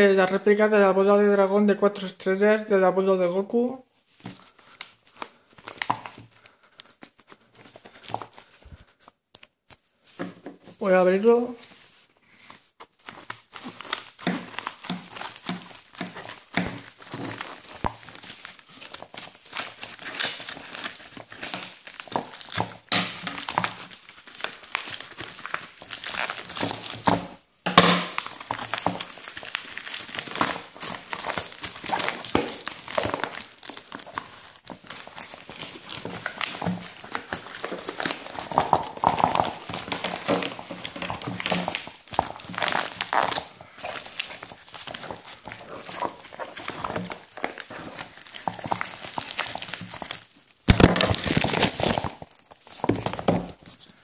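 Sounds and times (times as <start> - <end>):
loud plastic crackle: 4.2 - 9.0, 12.9 - 54.0
plastic mailer crinkling: 4.2 - 9.1, 10.5 - 54.0.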